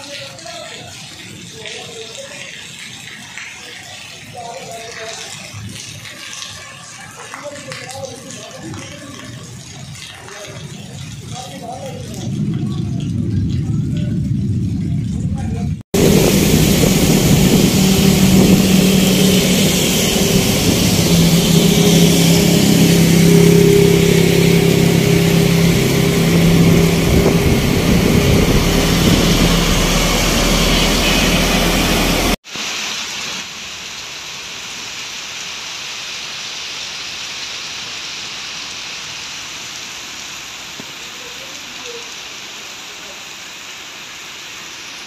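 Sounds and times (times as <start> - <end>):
heavy rain hissing: 0.0 - 45.0
truck engine running: 15.9 - 32.4.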